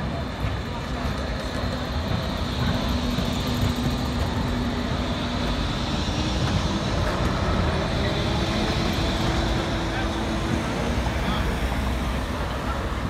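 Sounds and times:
tram traction drive hum: 0:00.0 - 0:13.0
wheels running on rails: 0:00.0 - 0:13.0.

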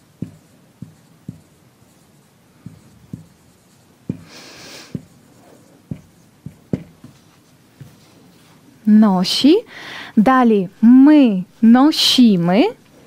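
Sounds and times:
marker tapping on whiteboard: 0:00.1 - 0:08.1
marker scratchy stroke: 0:00.2 - 0:08.5.

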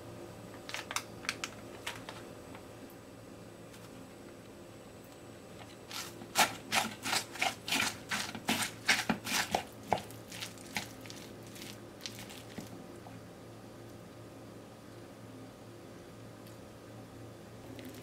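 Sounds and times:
wooden spatula scraping a bowl: 0:05.9 - 0:12.7.

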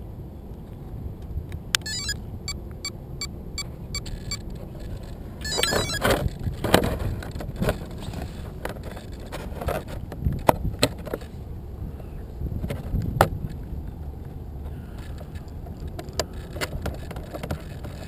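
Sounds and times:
light evenly spaced clicks: 0:01.7 - 0:02.2
plastic scraping and knocks: 0:16.0 - 0:18.0.

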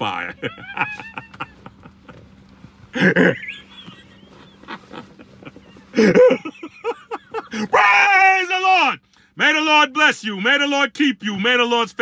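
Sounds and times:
man laughing: 0:00.0 - 0:08.0.

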